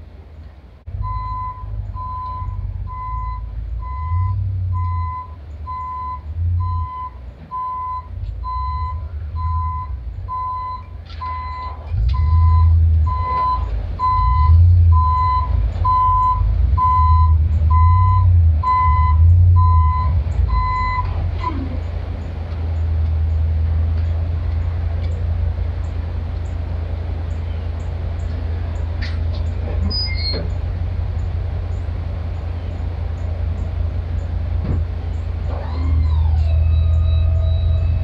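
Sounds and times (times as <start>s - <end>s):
diesel engine running: 0.0s - 38.0s
truck reversing alarm beeps: 1.0s - 22.0s, 29.8s - 38.0s.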